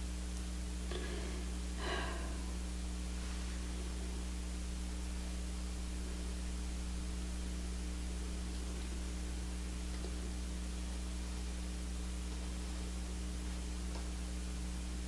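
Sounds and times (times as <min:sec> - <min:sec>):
constant hiss: 0:00.0 - 0:15.0
low electrical hum: 0:00.0 - 0:15.0
short breaths: 0:00.9 - 0:02.5.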